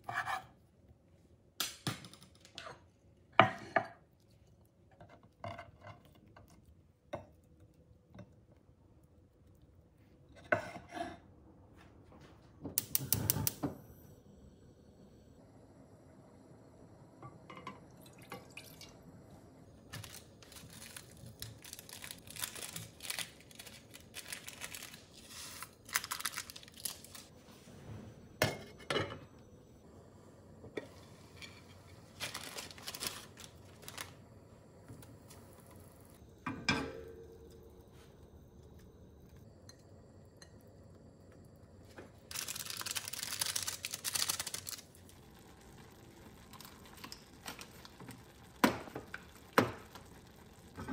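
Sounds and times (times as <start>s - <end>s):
seasoning packet crinkling: 20.0s - 27.3s, 32.2s - 34.2s, 42.3s - 45.0s
food going into frying pan: 42.3s - 50.9s.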